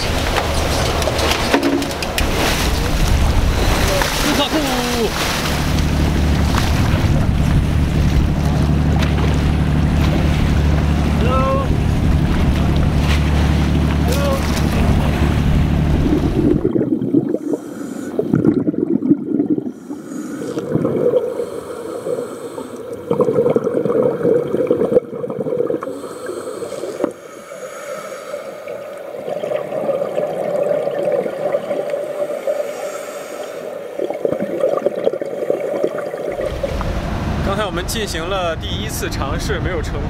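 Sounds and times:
wind and water at sea surface: 0.0 - 40.0
muffled underwater sound: 2.7 - 21.6
scuba bubbles gurgling: 14.6 - 37.5
regulator breathing: 17.3 - 18.4, 19.6 - 23.1, 25.8 - 29.1, 32.2 - 33.9.

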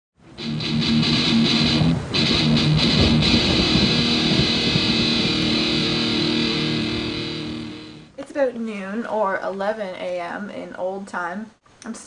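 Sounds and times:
electric guitar chords: 0.2 - 8.1.

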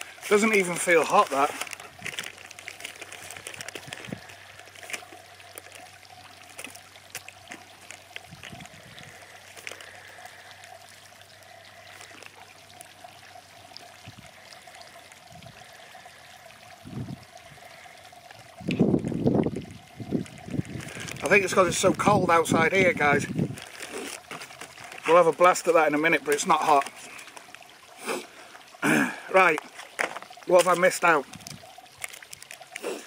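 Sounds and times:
plastic pouch crinkling: 0.0 - 14.9, 19.5 - 22.1, 23.1 - 27.8, 29.5 - 33.0
ration heater fizzing: 0.0 - 33.0.

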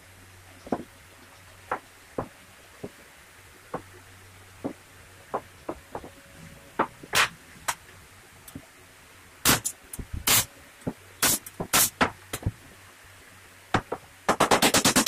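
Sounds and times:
wooden parts knocking on workbench: 4.6 - 6.2.

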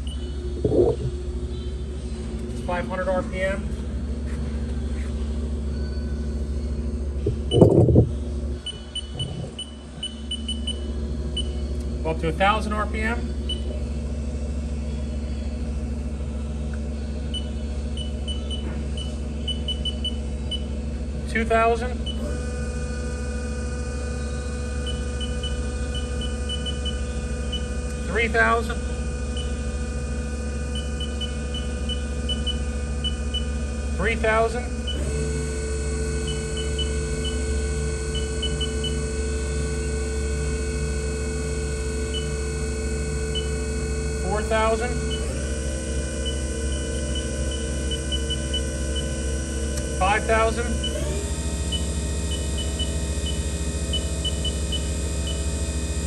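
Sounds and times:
mill spindle humming: 0.0 - 56.0
short high keypad beeps: 7.3 - 8.1
keypad beeps: 7.3 - 10.8.

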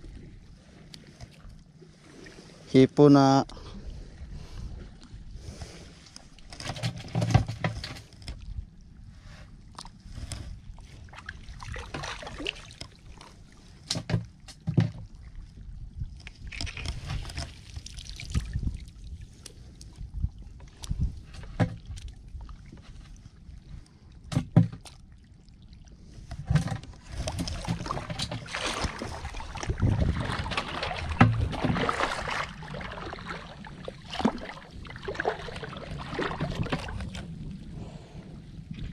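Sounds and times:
seawater splashing: 26.9 - 38.2.

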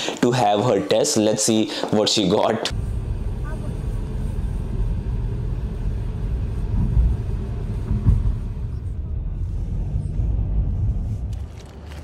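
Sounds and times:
car tyre and engine rumble: 2.7 - 12.0.

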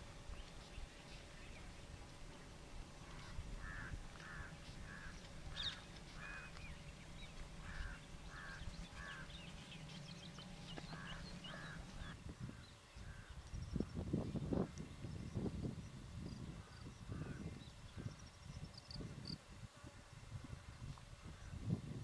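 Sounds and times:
low hum: 0.0 - 19.4
small birds chirping: 0.0 - 19.4
birds harsh calls: 2.4 - 13.9.

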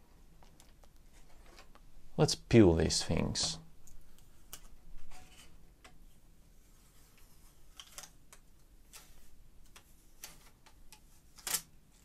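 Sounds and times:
plastic film peeling crinkles: 7.6 - 12.0.

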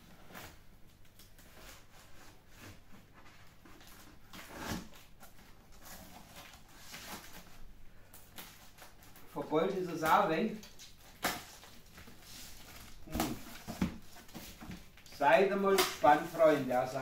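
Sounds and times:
cardboard rustling: 0.1 - 17.0
packing tape ripping: 8.1 - 11.9, 15.0 - 16.3.

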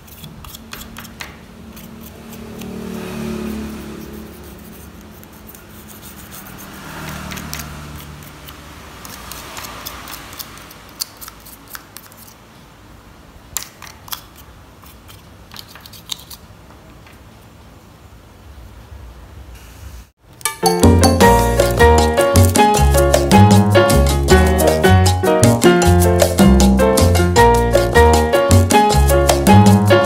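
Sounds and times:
toothbrush scrubbing circuit board: 0.0 - 12.4.

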